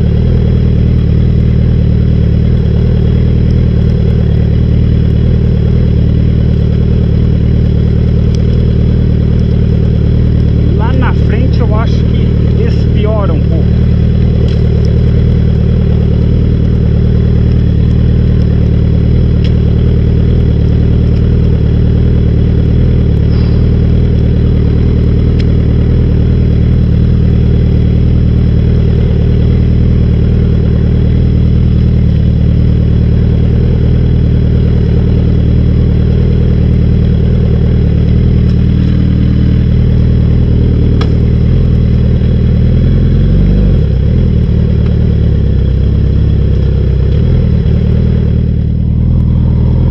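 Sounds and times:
motorcycle engine running: 0.0 - 49.9.

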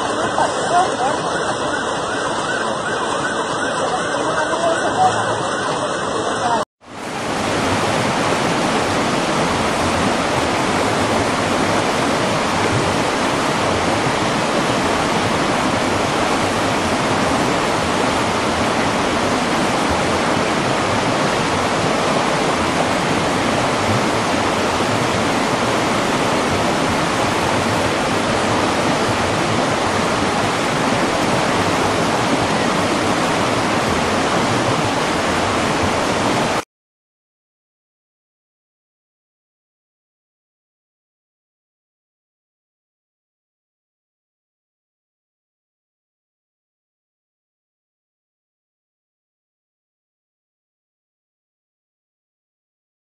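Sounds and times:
floodwater rushing: 0.0 - 36.6.

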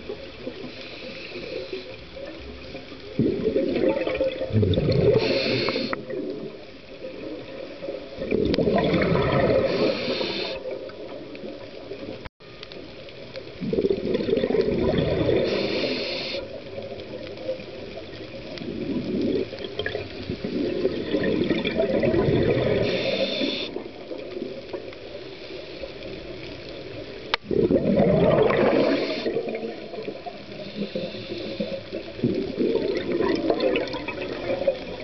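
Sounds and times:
gurgling exhaled bubbles: 0.0 - 12.3, 13.5 - 35.0
regulator hiss: 0.4 - 2.3, 5.1 - 6.1, 9.6 - 10.8, 15.3 - 16.8, 22.7 - 23.9, 28.6 - 29.5, 30.4 - 32.1.

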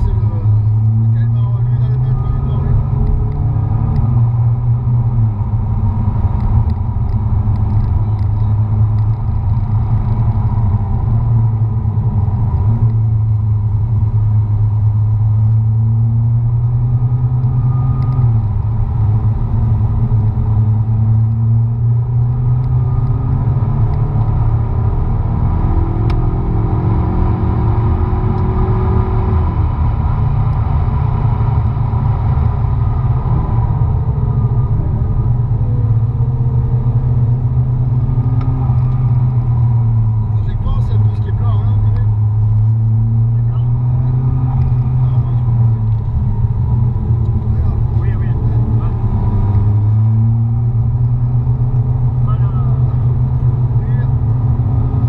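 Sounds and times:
car engine droning: 0.0 - 55.0
road rumble: 0.0 - 55.0.

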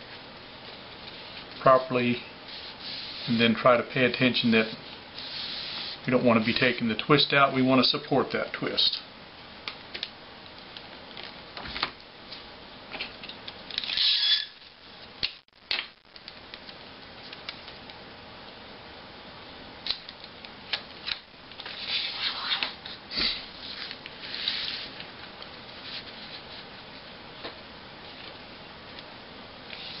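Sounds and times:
paper and tape rustling: 21.0 - 25.1.

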